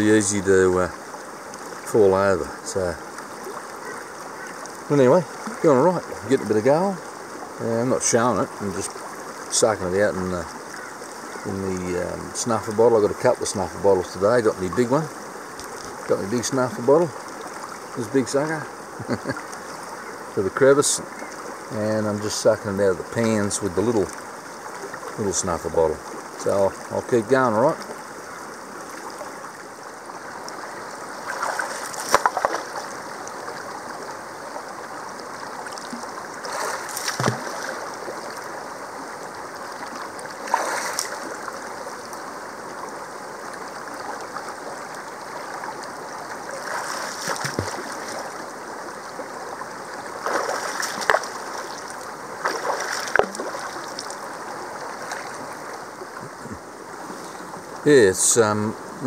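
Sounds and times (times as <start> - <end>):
creek rushing over rocks: 0.0 - 59.0
splashes and knocks in water: 31.2 - 33.0, 35.8 - 38.2, 40.4 - 41.4, 46.5 - 48.3, 50.2 - 54.2.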